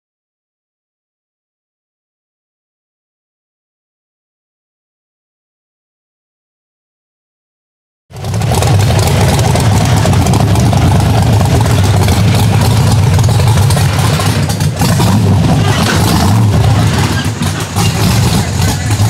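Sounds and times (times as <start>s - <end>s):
buggy engine running at low revs: 8.1s - 19.0s.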